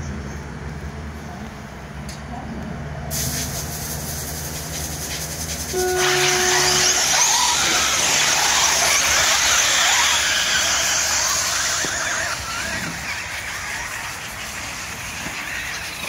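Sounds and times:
rc car motors whining: 4.1s - 16.0s.

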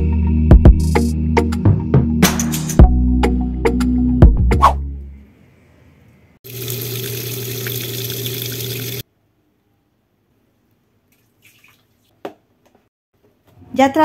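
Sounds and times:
water running hard: 6.5s - 9.0s.

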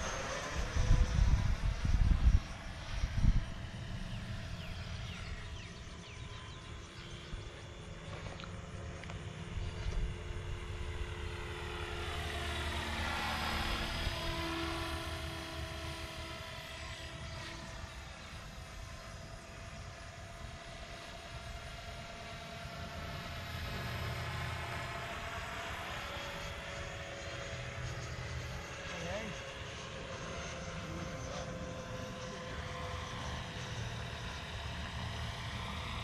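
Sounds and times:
model jet fan whine: 0.0s - 36.0s.

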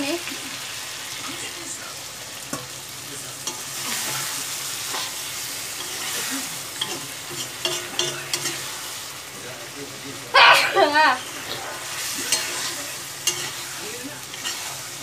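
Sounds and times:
curry sizzling in a pan: 0.0s - 15.0s
metal spatula scraping a pan: 3.5s - 9.0s, 10.4s - 15.0s.

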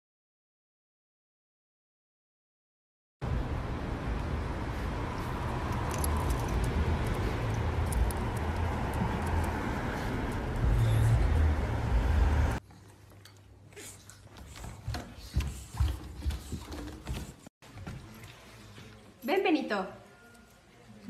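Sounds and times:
traffic rumble: 3.2s - 12.6s.

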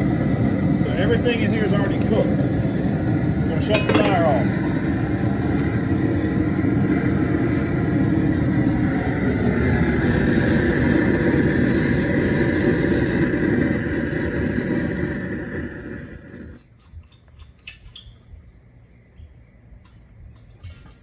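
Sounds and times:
propane burner flame rushing: 0.0s - 16.7s.

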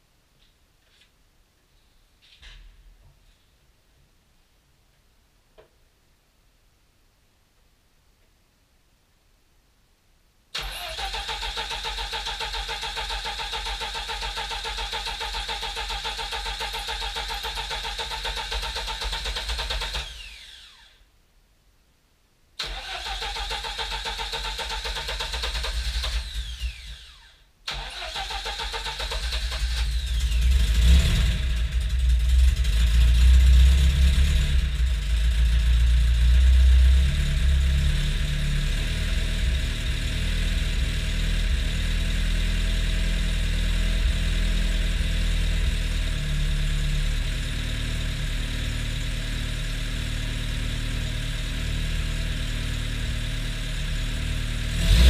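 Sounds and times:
starter motor cranking engine: 10.6s - 20.9s, 22.6s - 32.1s.

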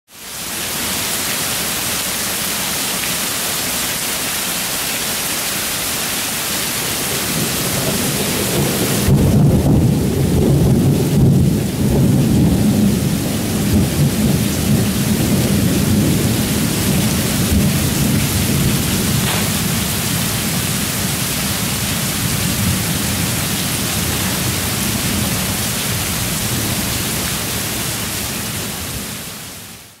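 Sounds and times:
heavy rain on paving and trees: 0.1s - 30.0s
thunder rumble: 7.0s - 27.0s.

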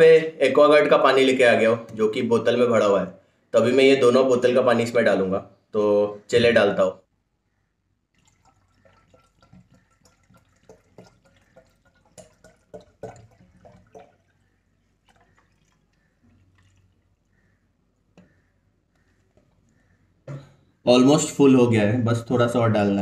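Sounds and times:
faint water trickles: 8.0s - 20.8s
water pouring into glass bowl: 8.1s - 17.3s.

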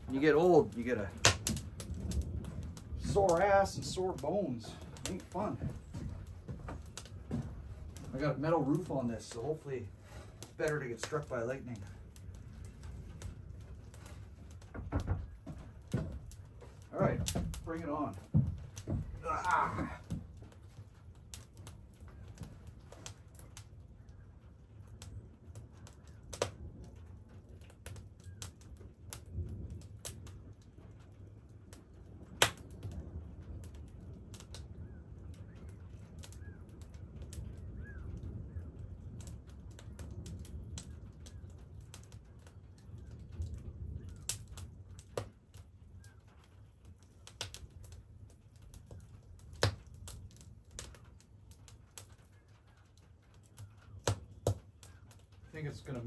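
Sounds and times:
wood fire crackling: 0.0s - 56.0s
faint bird chirps: 34.7s - 36.8s, 37.5s - 38.8s.

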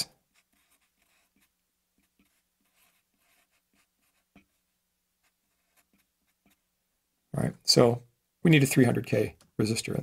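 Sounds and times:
marker pen writing on paper: 0.0s - 6.7s.

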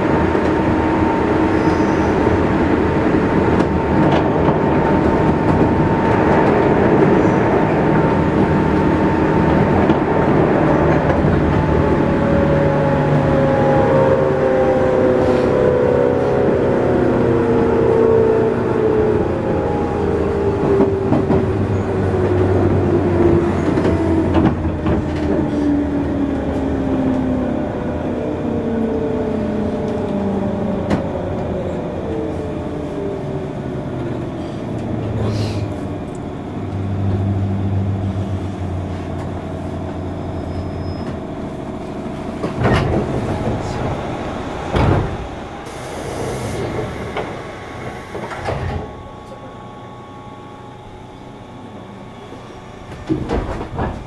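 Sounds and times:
electric train motor whine: 0.0s - 54.0s
train wheels rumbling on rail: 0.0s - 54.0s
rail-joint clacks: 42.3s - 45.4s, 46.2s - 49.4s.

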